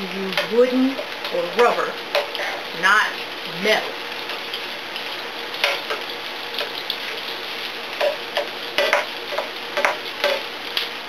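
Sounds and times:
onions sizzling in a frying pan: 0.0 - 11.0
metal utensils scraping a pan: 0.3 - 2.7, 5.6 - 6.0, 8.0 - 10.5.

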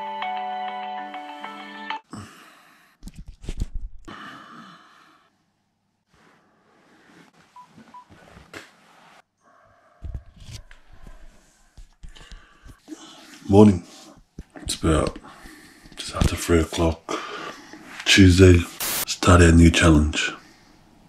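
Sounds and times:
rustling of bedding: 6.1 - 9.2.

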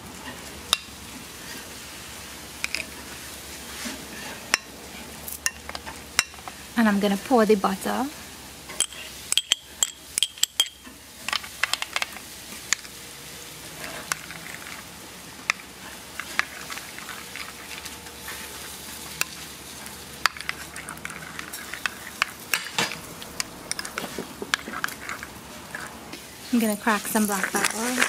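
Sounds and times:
spoon stirring in a bowl: 2.6 - 3.0, 8.7 - 12.9, 13.6 - 26.0, 26.6 - 28.0
spoon clinking against bowl: 8.8 - 10.8.

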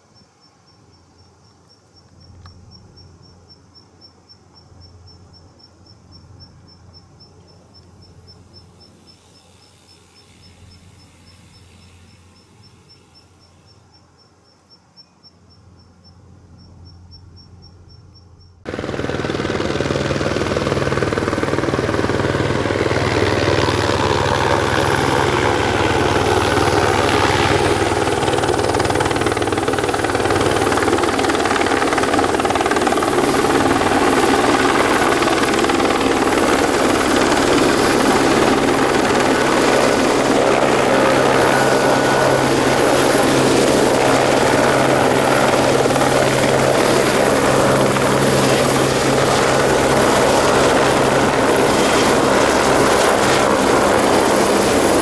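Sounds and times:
insect chirping: 0.0 - 18.7, 24.0 - 55.0
turbine engine whine: 16.4 - 55.0
helicopter rotor beat: 18.6 - 55.0.

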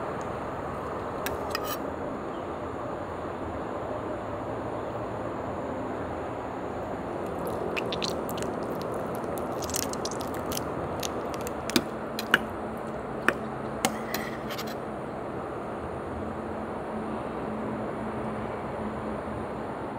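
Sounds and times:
crab shell crackling: 7.2 - 12.5
wet squishing: 7.2 - 12.5.

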